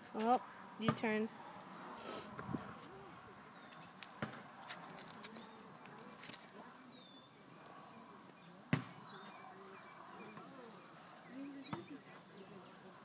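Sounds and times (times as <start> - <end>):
faint chirps: 6.8 - 13.0.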